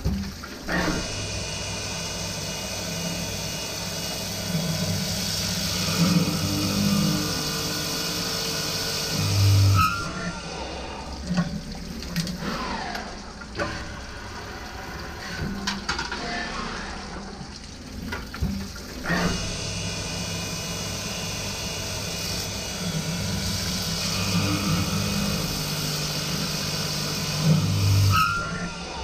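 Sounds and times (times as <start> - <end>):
coolant running over metal: 0.0 - 29.0
drilling machine motor hum: 0.7 - 11.2, 19.0 - 29.0.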